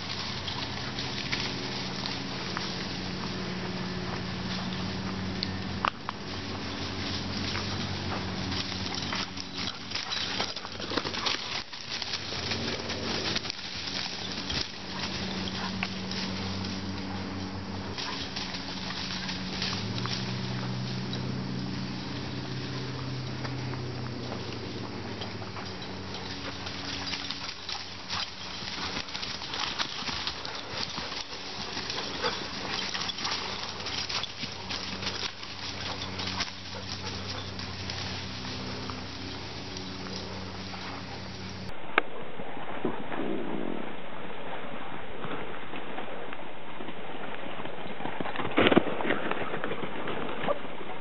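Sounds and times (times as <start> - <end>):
dogs running through dry leaves: 0.0 - 41.8, 42.4 - 51.0.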